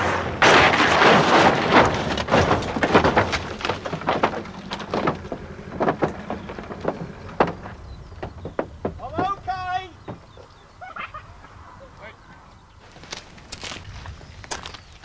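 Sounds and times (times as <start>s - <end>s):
car crash: 0.0s - 9.5s
metallic bangs and clatters: 0.0s - 10.3s.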